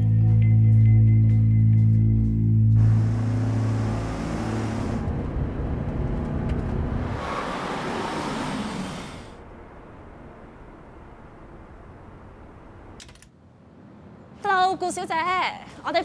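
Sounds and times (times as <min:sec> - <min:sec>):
traffic hum: 0:01.6 - 0:16.0
cars passing: 0:02.5 - 0:14.4.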